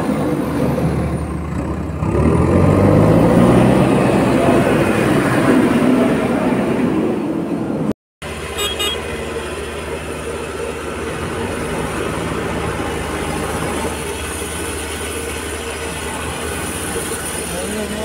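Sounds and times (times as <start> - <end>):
diesel engine running: 8.2 - 18.0
short high toots: 8.6 - 9.0.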